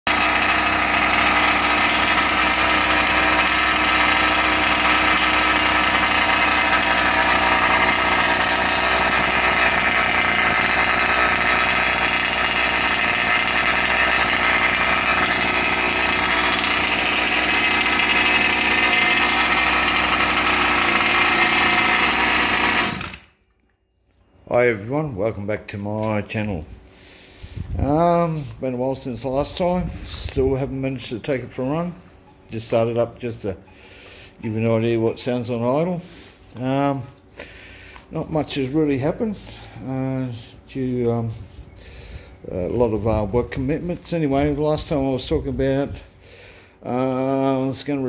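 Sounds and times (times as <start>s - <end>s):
two-stroke engine idling: 0.1s - 23.3s.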